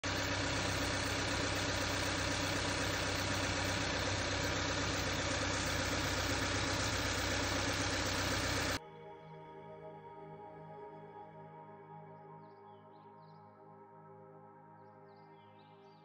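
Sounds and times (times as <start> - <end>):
car engine idling: 0.0 - 8.8.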